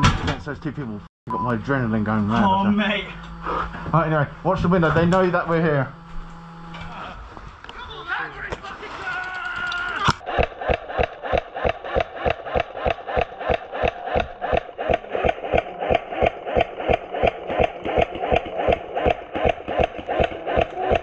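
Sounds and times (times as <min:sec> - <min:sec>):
pulsing beat of sharp ticks: 0:10.1 - 0:21.0.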